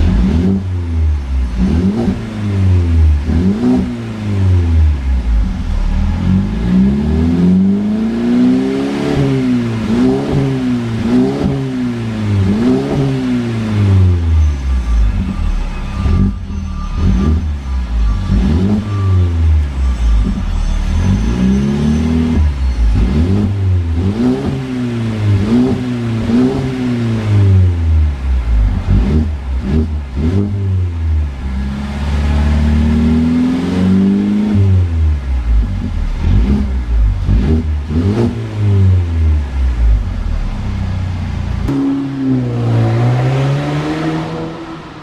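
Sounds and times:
car engine revving: 0.0 - 45.0.

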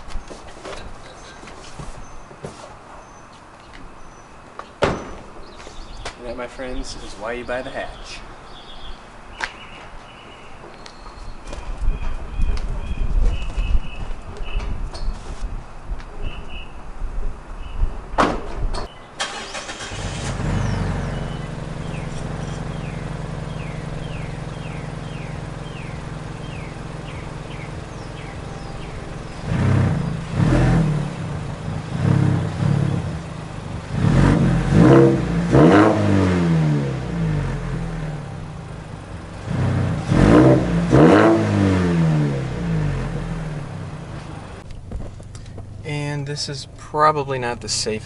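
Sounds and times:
car engine starting and idling: 18.9 - 48.0
engine revving in short blips: 19.2 - 38.3, 39.4 - 44.6.

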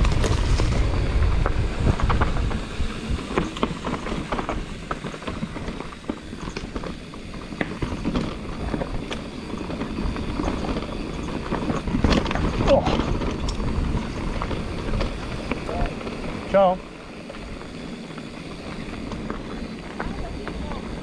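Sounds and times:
heavy low rumble: 0.0 - 4.6
bike clicks and rattles: 0.0 - 21.0
bike tyre noise on dirt: 0.0 - 21.0.

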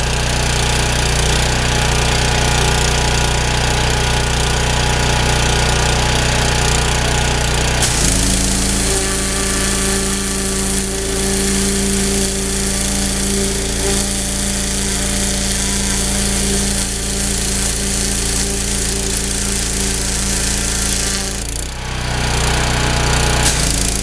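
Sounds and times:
pressure washer running: 0.0 - 24.0
water jet hissing: 7.6 - 21.6.

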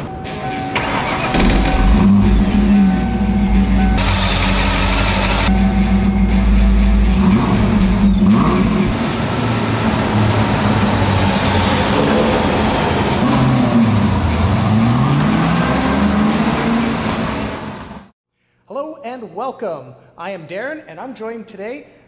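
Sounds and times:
car engine revving: 0.8 - 18.1.

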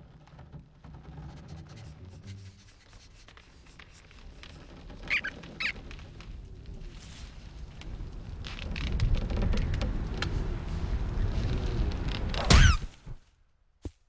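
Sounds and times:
cartoon rodent squeaks: 5.0 - 5.8, 12.5 - 12.9.

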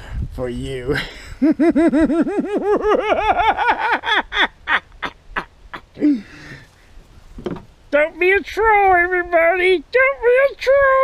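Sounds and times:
man laughing: 0.9 - 6.6.

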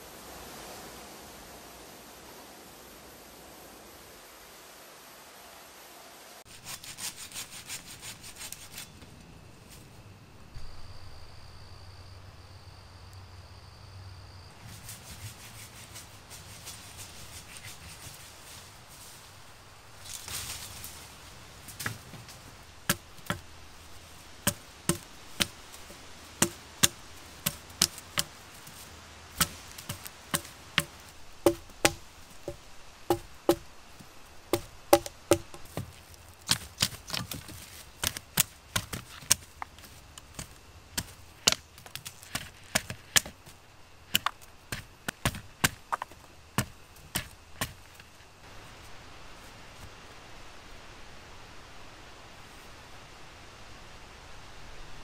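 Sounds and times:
wood being chopped: 22.8 - 33.7, 34.4 - 48.1.

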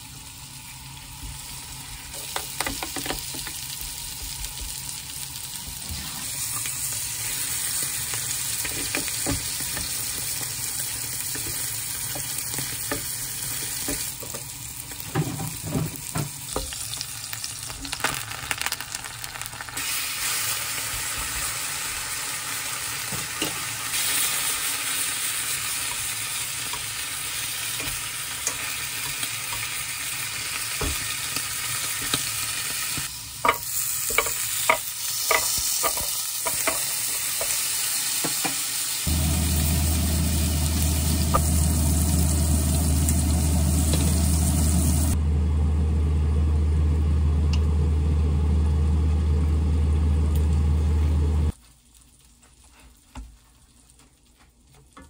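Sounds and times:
food sizzling in a pan: 0.0 - 45.2
utensils tapping and scraping pans: 8.6 - 10.5, 33.4 - 37.6.

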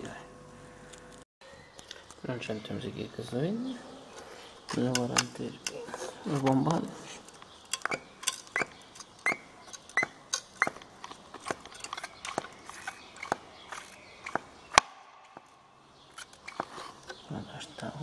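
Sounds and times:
primer bulb clicking and squeaking: 4.2 - 14.5, 15.4 - 17.2.

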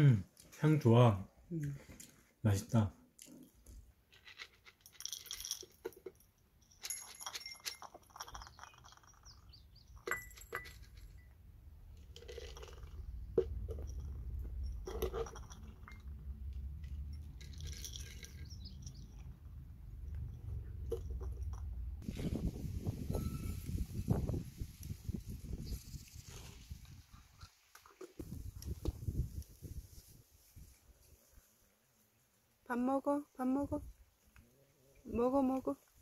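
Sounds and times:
cat kibble rattling in plastic jar: 4.1 - 11.3, 11.9 - 19.4
kibble spilling into bowls: 12.0 - 16.2.

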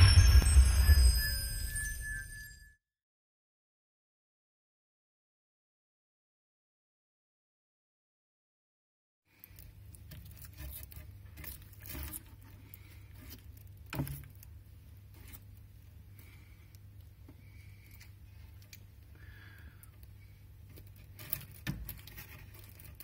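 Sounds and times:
low hum: 0.0 - 2.7.

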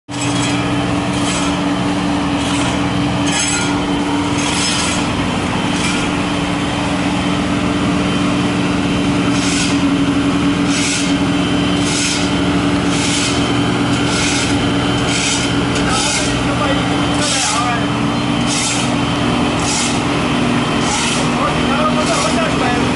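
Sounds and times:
diesel engine running: 0.1 - 22.9
broom sweeping pavement: 9.2 - 9.9, 10.6 - 22.8.

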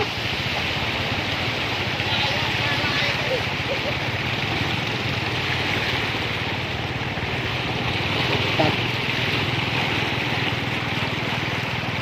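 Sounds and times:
water splashing: 0.0 - 12.0.

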